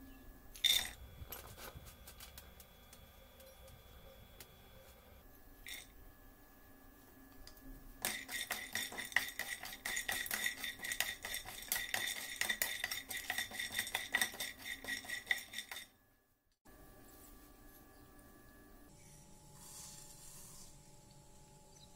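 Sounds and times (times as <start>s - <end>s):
nuts clattering in metal pan: 0.6s - 1.0s, 8.0s - 15.9s.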